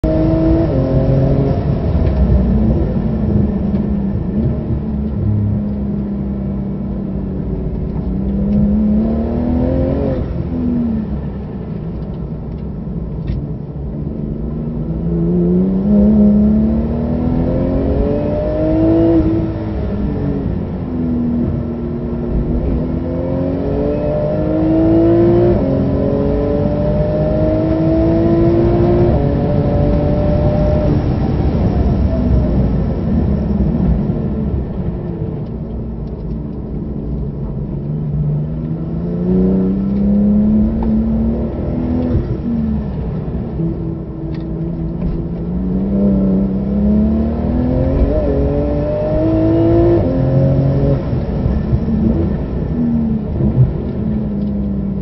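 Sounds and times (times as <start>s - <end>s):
race car engine revving: 21.5s - 32.1s, 38.0s - 55.0s.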